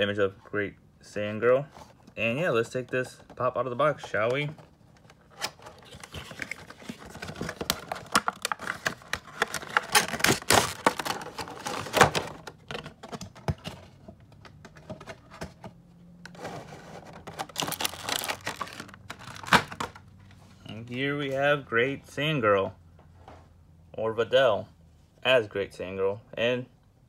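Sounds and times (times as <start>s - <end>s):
cardboard and plastic rustling: 1.7s - 20.7s.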